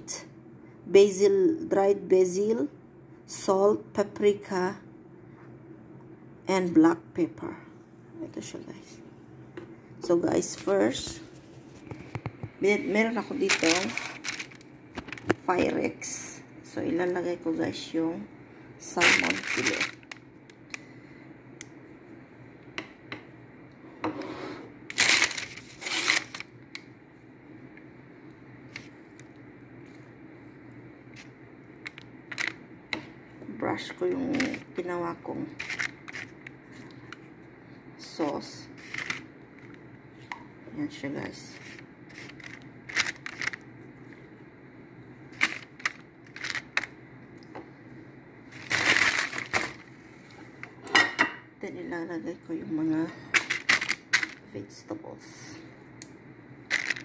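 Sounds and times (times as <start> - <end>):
plastic film crinkling: 13.3 - 15.4, 19.0 - 20.2, 24.9 - 26.5, 35.6 - 36.8, 38.8 - 39.8, 41.6 - 43.6, 45.4 - 46.9, 48.5 - 49.9, 53.4 - 54.4, 56.7 - 57.0.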